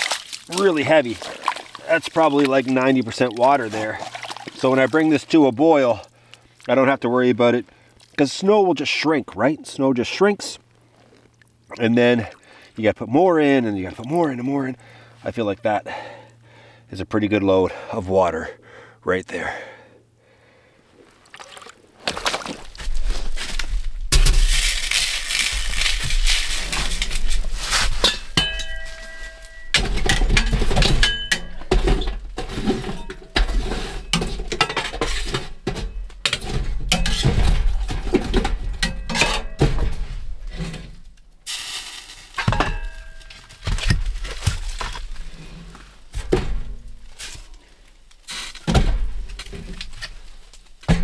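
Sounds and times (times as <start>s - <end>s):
firewood being handled: 20.9s - 29.6s, 39.9s - 51.0s
poker raking embers: 21.9s - 29.5s, 40.5s - 46.2s, 46.8s - 50.9s
metal pot set on stove: 27.9s - 38.0s
metal clanks and knocks: 28.0s - 41.0s, 42.4s - 45.0s.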